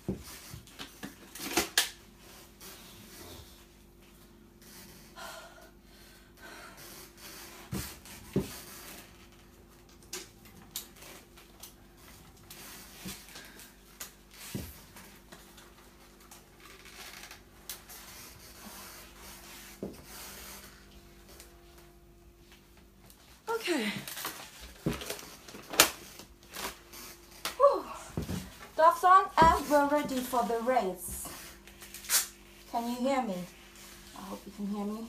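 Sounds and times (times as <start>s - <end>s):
leather suit rubbing and creaking: 16.0s - 20.9s.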